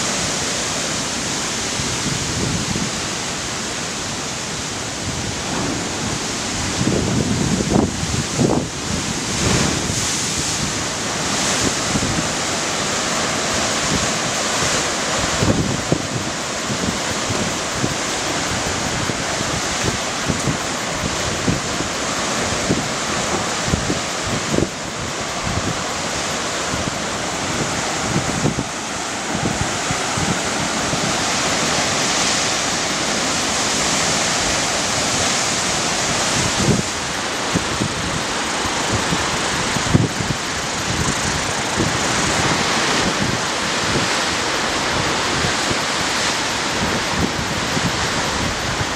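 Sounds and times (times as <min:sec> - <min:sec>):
surf washing against rocks: 0:00.0 - 0:48.9
wind buffeting the microphone: 0:00.0 - 0:48.9.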